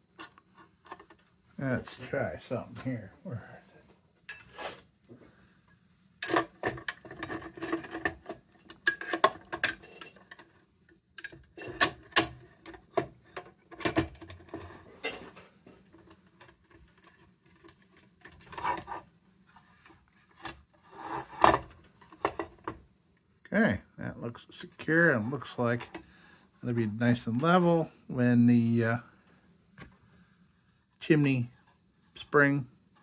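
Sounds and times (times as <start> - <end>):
metal lantern parts clicking: 11.2 - 12.8.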